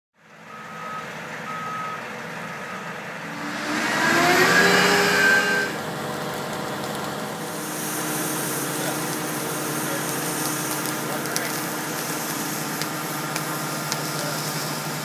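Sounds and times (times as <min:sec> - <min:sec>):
truck engine running: 0:00.2 - 0:15.0
reversing alarm beeping: 0:00.5 - 0:02.0
rush of noise with rising tones: 0:03.2 - 0:06.0.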